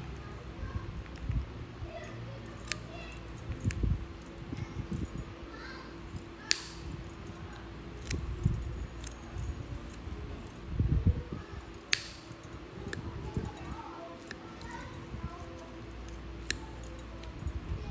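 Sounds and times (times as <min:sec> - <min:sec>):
nail nippers snipping toenail: 0:02.5 - 0:05.0, 0:06.1 - 0:10.6, 0:11.6 - 0:17.9.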